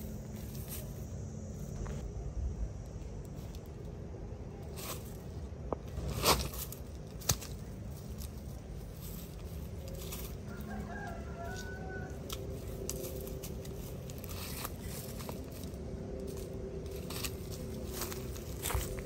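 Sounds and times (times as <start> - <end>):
rustling dry leaves: 0.0 - 19.0
machete scraping soil: 4.7 - 10.4
rooster crowing: 10.3 - 13.7.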